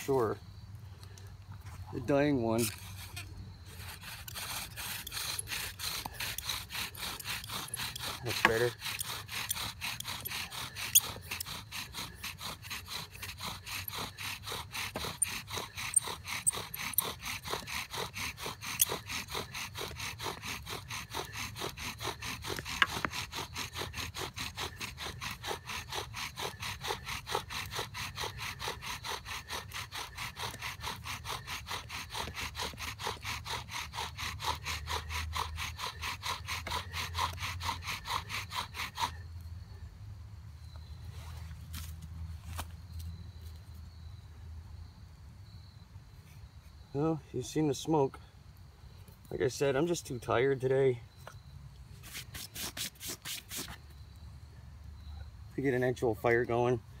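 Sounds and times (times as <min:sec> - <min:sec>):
wooden spindle grinding: 0:02.0 - 0:39.2.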